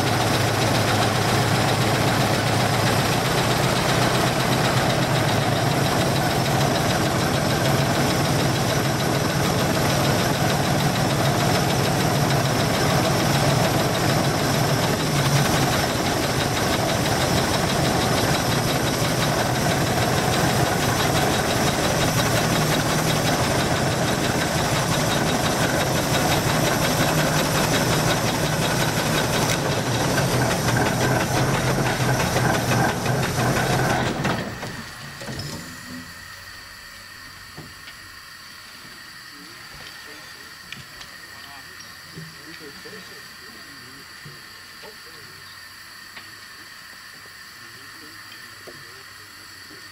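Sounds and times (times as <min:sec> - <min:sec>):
steam engine winching cable: 0:00.0 - 0:49.9.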